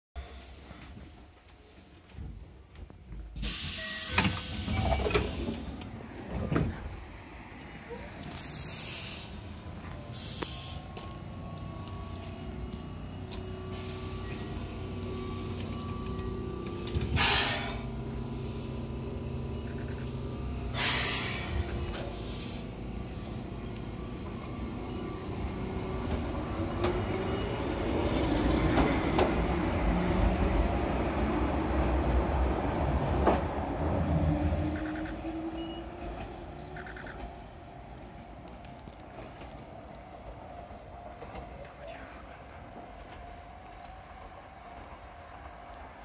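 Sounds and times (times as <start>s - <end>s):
electric train humming: 7.0s - 46.0s
train motor whine: 8.1s - 39.6s
compressed air hissing: 8.2s - 10.9s, 17.1s - 19.0s, 20.1s - 23.6s.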